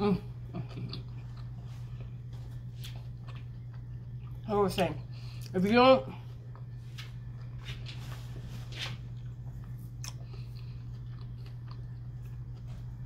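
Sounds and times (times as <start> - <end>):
steady low hum: 0.0 - 13.0
close-up chewing: 0.5 - 4.5, 9.0 - 13.0.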